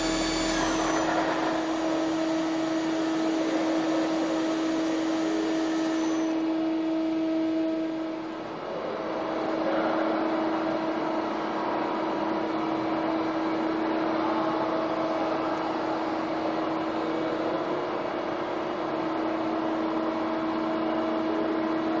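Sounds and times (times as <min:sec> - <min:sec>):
lathe machine hum: 0:00.0 - 0:08.4.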